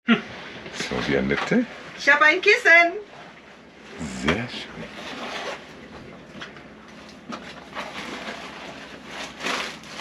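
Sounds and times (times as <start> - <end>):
wrapping paper crinkling: 7.8 - 10.0.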